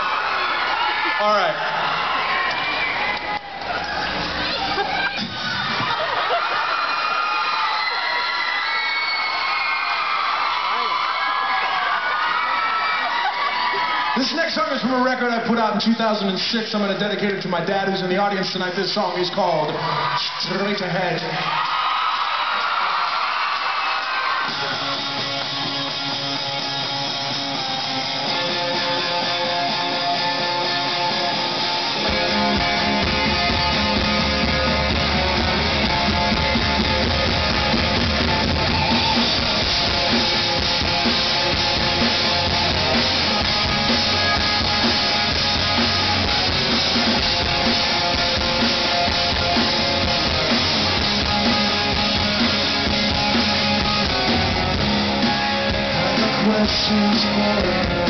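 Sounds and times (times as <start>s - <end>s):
drum kit: 24.4s - 58.0s
electric guitar: 24.4s - 58.0s
bass guitar: 24.5s - 58.0s.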